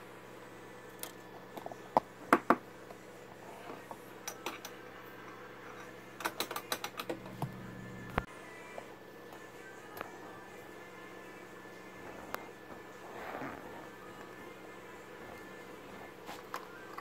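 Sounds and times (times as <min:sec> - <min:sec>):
small tools clicking and tapping: 0:05.8 - 0:07.2
steady low hum: 0:07.0 - 0:17.0.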